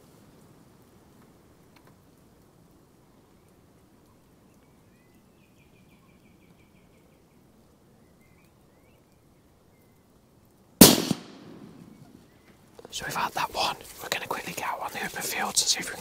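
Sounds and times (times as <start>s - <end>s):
rifle shot: 10.8s - 12.2s.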